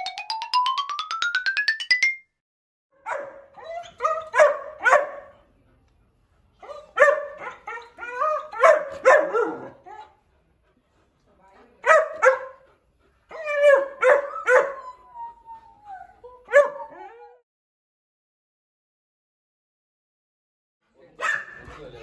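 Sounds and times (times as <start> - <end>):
puppy barking: 3.0 - 5.4, 6.7 - 9.8, 11.8 - 12.7, 13.3 - 14.8, 16.5 - 17.0, 21.2 - 21.6.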